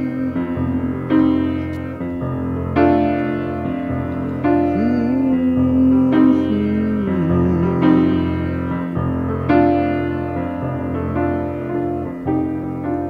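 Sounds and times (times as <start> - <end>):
wordless vocal gliding: 0.0 - 1.1, 4.4 - 9.2
solo piano chords: 0.0 - 13.0.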